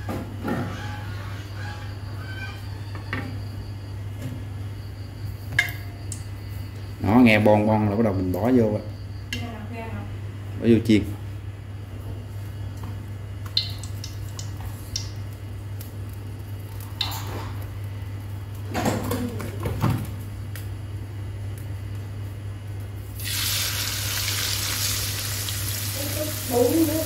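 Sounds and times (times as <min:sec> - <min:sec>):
low steady hum: 0:07.7 - 0:27.0
meat sizzling in hot oil: 0:23.2 - 0:27.0.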